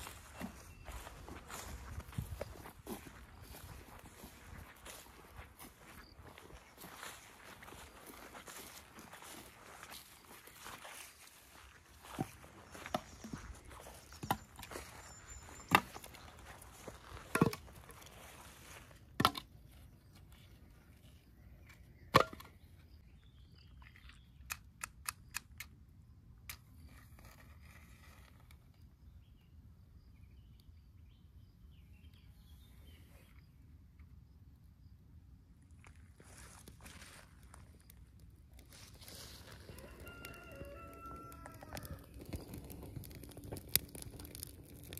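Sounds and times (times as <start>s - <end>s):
firewood sticks knocking on pile: 17.0s - 18.0s, 19.2s - 19.5s, 22.1s - 22.6s.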